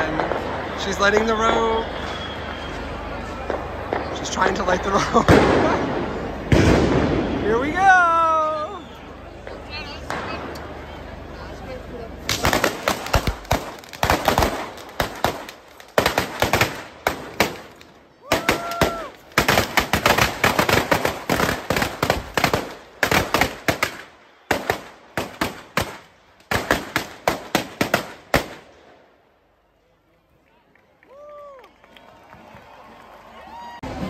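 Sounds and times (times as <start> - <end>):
firecrackers rattling bangs: 0.0 - 7.7, 12.2 - 28.9.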